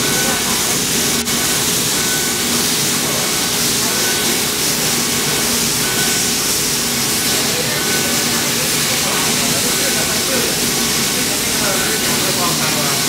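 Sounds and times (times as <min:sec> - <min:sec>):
laser cutter hiss: 0:00.0 - 0:13.0
steady hum: 0:00.0 - 0:13.0.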